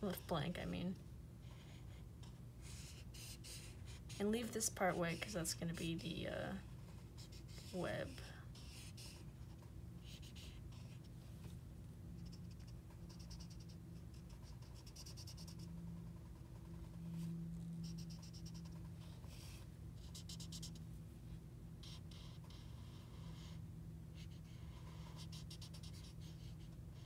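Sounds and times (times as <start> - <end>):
marker scribbling on paper: 1.5 - 5.8, 7.2 - 11.0, 24.2 - 27.0
low hum: 9.4 - 24.9.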